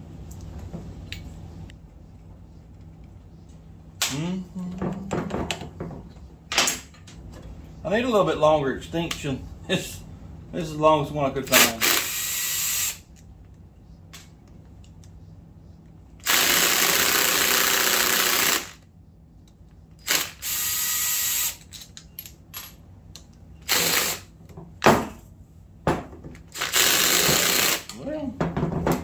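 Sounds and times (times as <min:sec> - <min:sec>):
cordless drill spinning bolts: 0:11.6 - 0:13.0, 0:16.2 - 0:18.8, 0:23.6 - 0:24.2, 0:26.5 - 0:27.9.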